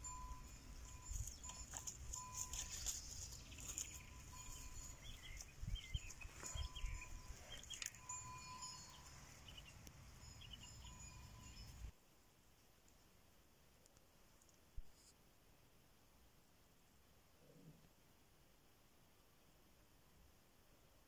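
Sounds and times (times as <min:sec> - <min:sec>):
wind rumble on microphone: 0:04.1 - 0:07.7.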